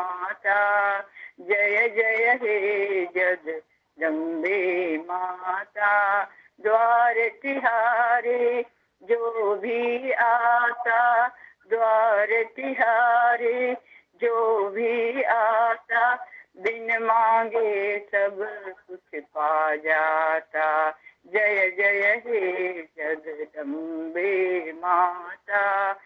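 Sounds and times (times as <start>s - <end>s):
woman singing unaccompanied: 0.0s - 26.0s
woman breathing: 1.1s - 1.4s, 6.3s - 6.6s, 11.3s - 11.7s, 13.8s - 14.2s, 16.2s - 16.6s, 21.0s - 21.3s.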